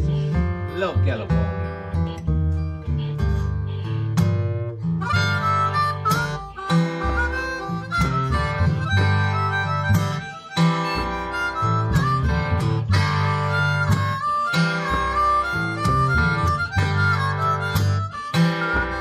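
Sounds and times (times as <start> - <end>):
blues harmonica with bent notes: 0.0 - 19.0
guitar playing steady rhythm: 0.0 - 19.0.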